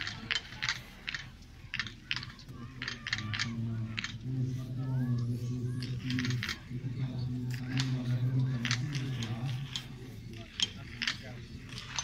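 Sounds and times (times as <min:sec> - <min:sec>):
ski poles clicking on hard snow: 0:00.0 - 0:04.2, 0:07.5 - 0:12.0.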